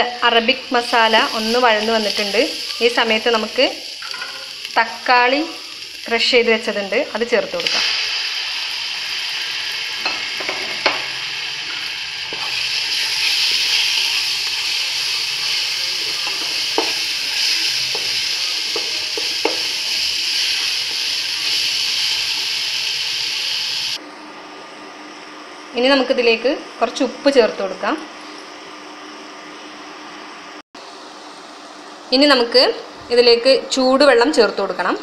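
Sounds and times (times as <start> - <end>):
tomato sizzling in hot oil: 0.4 - 24.0.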